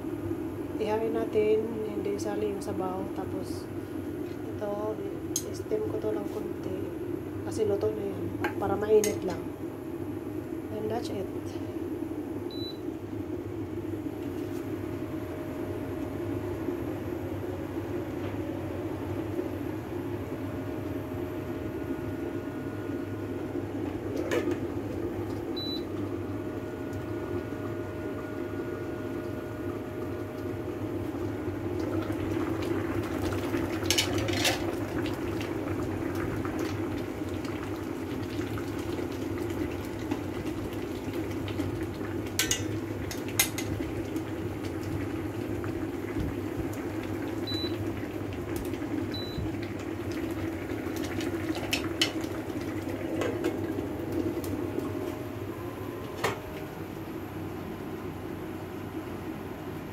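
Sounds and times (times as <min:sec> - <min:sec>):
pot boiling bubbling: 0:18.8 - 0:56.2.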